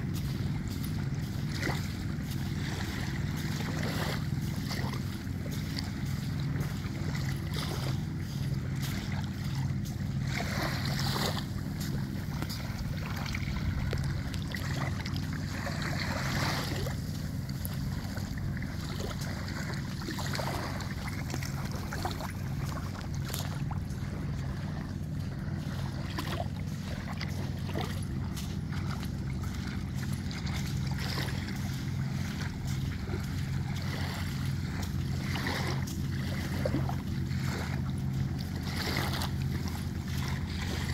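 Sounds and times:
boat engine droning: 0:00.0 - 0:40.9
small waves washing on sand: 0:00.0 - 0:40.9.

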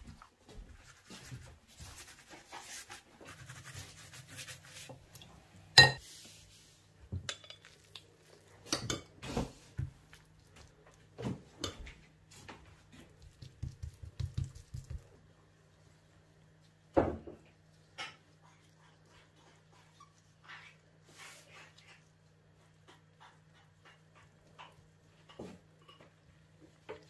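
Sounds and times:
brush on dough: 0:00.0 - 0:05.2, 0:06.0 - 0:16.8, 0:17.5 - 0:27.0
glass bowl clinking on stone: 0:05.8 - 0:06.0.

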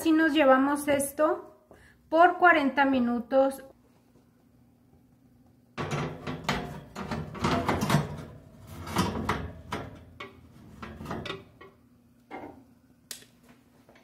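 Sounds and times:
metal pan scraping on oven rack: 0:05.8 - 0:11.5.

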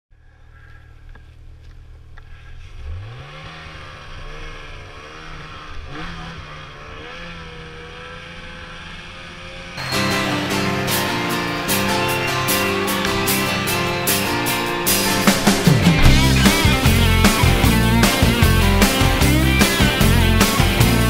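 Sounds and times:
snowmobile engine revving: 0:02.3 - 0:21.0
guitar music: 0:09.8 - 0:21.0.

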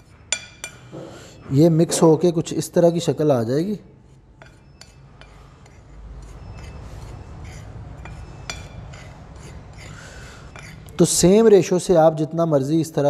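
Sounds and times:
fork scraping ceramic plate: 0:00.0 - 0:01.2, 0:04.0 - 0:11.2.

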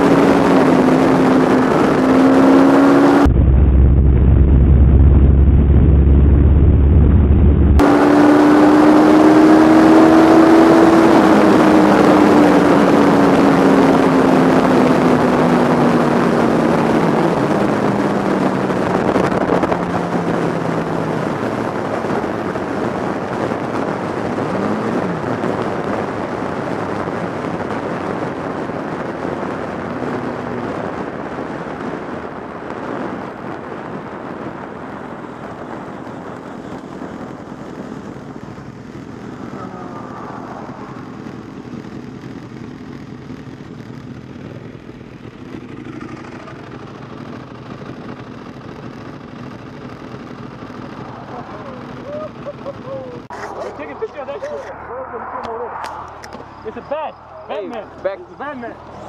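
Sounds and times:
motorcycle engine: 0:00.0 - 0:59.0
wind rushing over camera: 0:00.0 - 0:59.0.

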